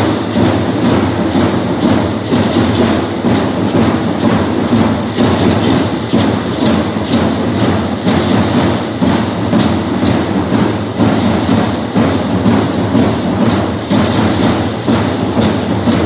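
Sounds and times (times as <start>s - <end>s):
shaken rattles: 0.0s - 16.0s
steady drum beat: 0.0s - 16.0s.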